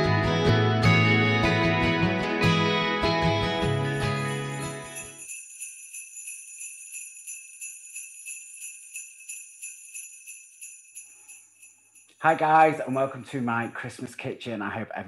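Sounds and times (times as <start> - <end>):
acoustic guitar music: 0.0 - 5.0
sleigh bells jingling: 3.8 - 13.9.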